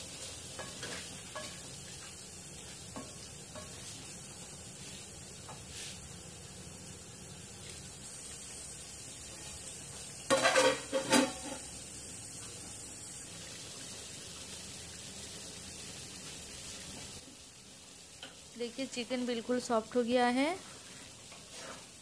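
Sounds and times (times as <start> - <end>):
gravy sizzling in a pan: 0.0 - 22.0
metal lid clanking on pan: 10.3 - 11.7.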